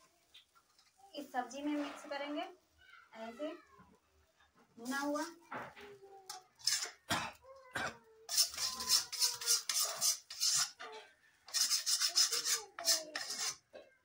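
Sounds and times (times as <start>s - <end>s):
metal spoon scraping steel pan: 6.3s - 7.0s, 8.3s - 13.7s.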